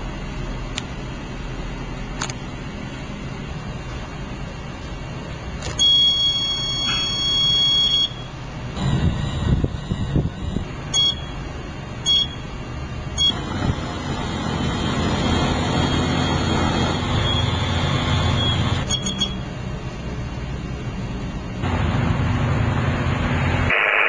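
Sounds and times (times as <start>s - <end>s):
quick triple beep: 5.8s - 11.4s, 18.4s - 19.4s
short warning beeps: 5.8s - 11.4s, 12.0s - 12.5s, 18.3s - 19.4s
drive motor running: 8.6s - 19.6s.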